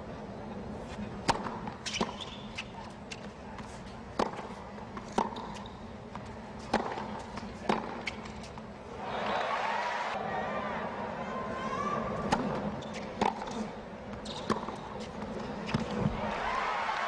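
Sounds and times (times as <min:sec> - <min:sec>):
tennis ball popping off racquets: 0:04.1 - 0:08.7
crowd murmur: 0:08.8 - 0:12.7
crowd cheering: 0:08.9 - 0:12.4, 0:16.1 - 0:17.0.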